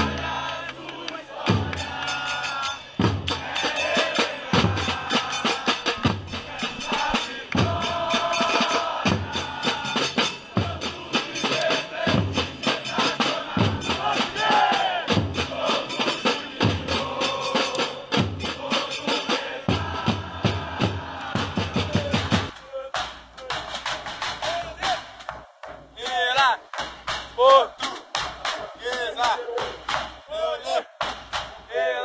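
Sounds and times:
bass drums: 0.0 - 0.8, 4.6 - 12.8, 19.7 - 31.7
crowd singing a chant: 0.0 - 25.4, 27.4 - 32.0
fast snare drums: 0.0 - 31.8.

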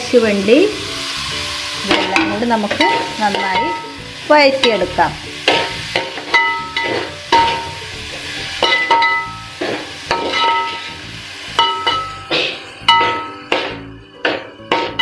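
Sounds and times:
light sizzling: 0.0 - 15.0
metal ladle knocking on pot: 1.9 - 3.9, 8.6 - 10.8, 11.6 - 15.0.

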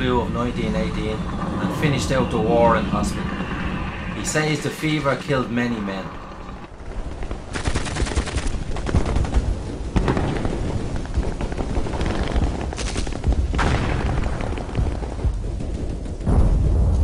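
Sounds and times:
continuous low rumble: 0.0 - 7.9
machine-gun and rifle fire: 7.5 - 15.1.

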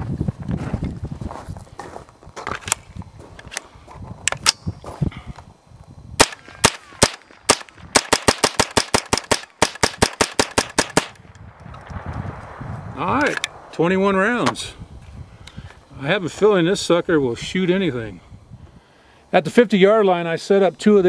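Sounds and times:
rifle shots: 6.2 - 11.2.

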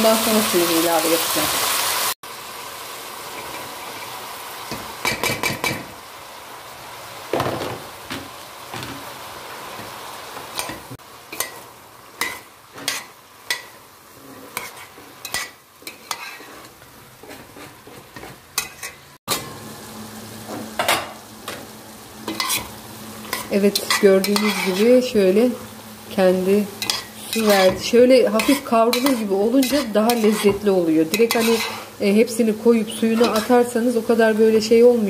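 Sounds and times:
vegetables sizzling in a pot: 0.0 - 35.0
eggplant tumbling into pot: 7.3 - 9.1
metal spoon scraping pot: 14.4 - 19.1, 26.8 - 31.9.

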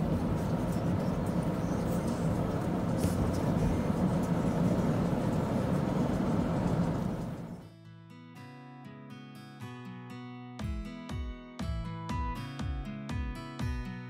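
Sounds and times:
car cabin engine and road noise: 0.0 - 7.6.

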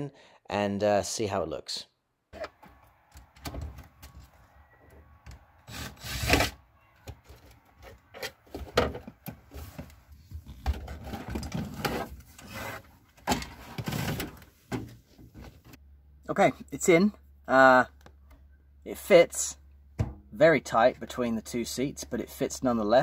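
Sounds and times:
plastic rubbing and scraping: 5.7 - 15.7.

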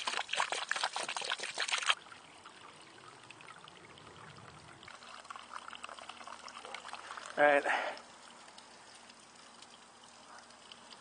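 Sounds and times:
water splashing into a cup: 0.0 - 8.5
faint water trickling: 0.0 - 11.0.

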